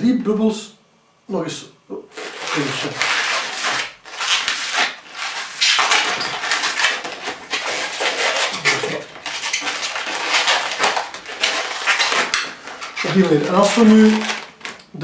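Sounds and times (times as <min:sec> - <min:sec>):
balloon squeaking and rubbing: 0:02.0 - 0:14.8.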